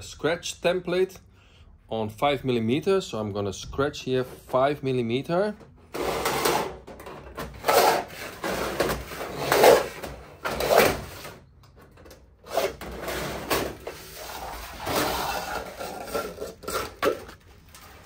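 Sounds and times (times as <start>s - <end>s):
metal scraping on steel sheet: 7.5s - 11.4s, 12.4s - 18.0s.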